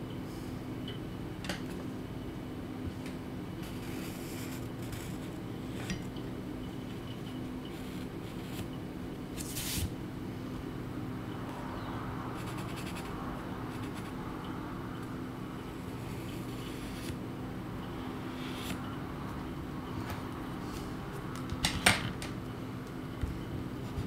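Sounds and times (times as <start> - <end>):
steady low hum: 0.0 - 24.0
pencil scratching on paper: 3.6 - 5.9, 12.4 - 13.1, 13.7 - 14.2.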